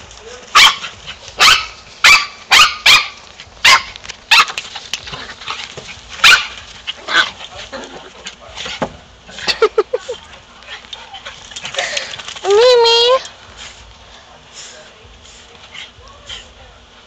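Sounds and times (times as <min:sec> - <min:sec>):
dog barking: 0:00.5 - 0:04.6, 0:06.2 - 0:06.6.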